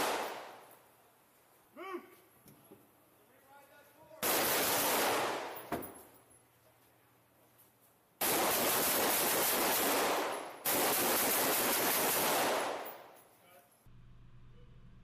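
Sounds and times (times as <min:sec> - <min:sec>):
sharp gunshot crack: 0:00.0 - 0:00.6
automatic gunfire bursts: 0:04.2 - 0:05.5, 0:08.2 - 0:12.9.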